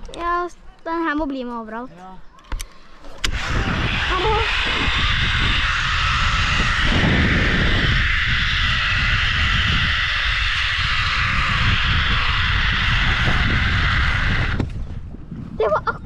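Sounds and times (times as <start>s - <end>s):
zipline trolley whirring on cable: 3.2s - 14.8s.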